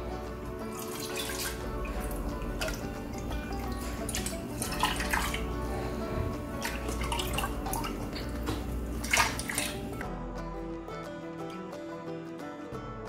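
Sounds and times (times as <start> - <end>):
stock splashing into a pot: 0.7 - 5.5, 6.6 - 10.0.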